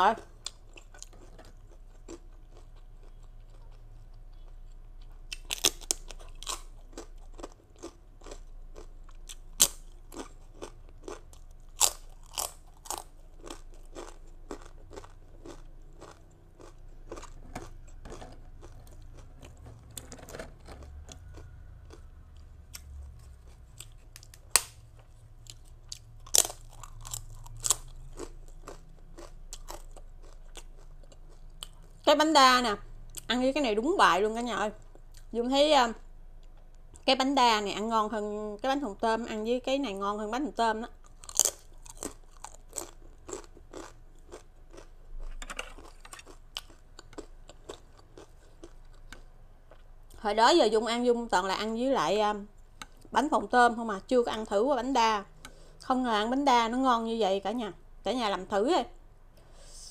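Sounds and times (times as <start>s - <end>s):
quiet chewing: 0.4s - 32.0s, 41.0s - 50.2s
crunching cracker: 0.5s - 31.9s, 41.0s - 49.8s.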